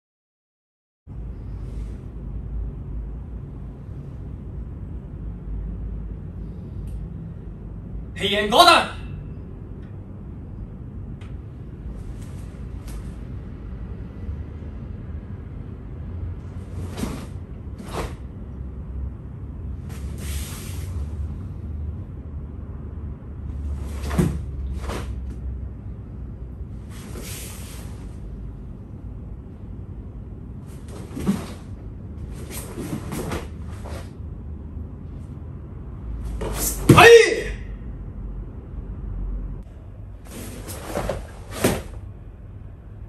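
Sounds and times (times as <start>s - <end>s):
uniform snapping and swishing: 12.0s - 13.2s, 16.5s - 18.3s, 19.8s - 21.0s, 23.7s - 25.4s, 26.8s - 28.2s, 30.7s - 34.2s, 36.2s - 37.0s, 40.2s - 42.0s
bare feet thudding on mat: 23.9s - 25.2s.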